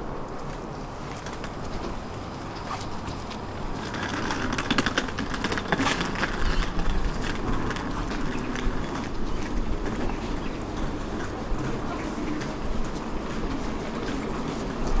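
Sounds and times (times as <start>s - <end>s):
tram humming: 0.0s - 15.0s.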